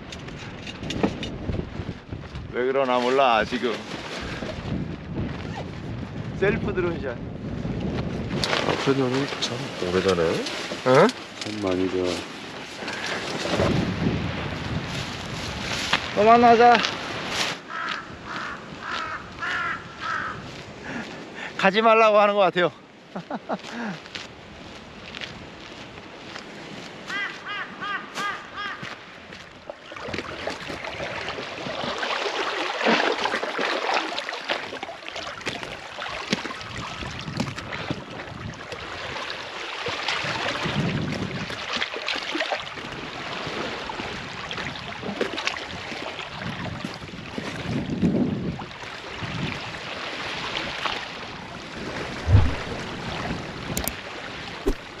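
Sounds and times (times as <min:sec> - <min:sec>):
sea water lapping against rocks: 0:29.4 - 0:55.0.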